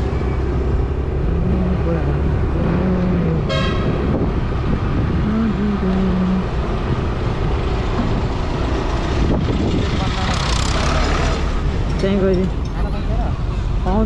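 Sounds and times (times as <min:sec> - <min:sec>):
motorcycle engine and road noise: 0:00.0 - 0:14.0
vehicle horn toot: 0:03.5 - 0:04.0.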